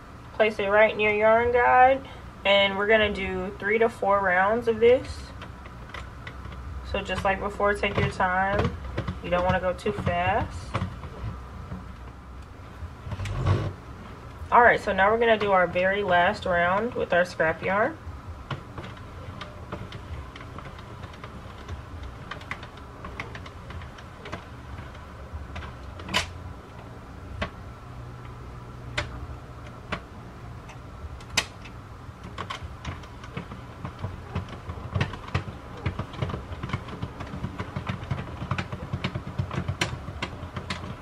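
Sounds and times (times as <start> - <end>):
low steady rumble: 0.0 - 41.0
knitting machine needles clicking: 2.9 - 13.4, 14.4 - 41.0.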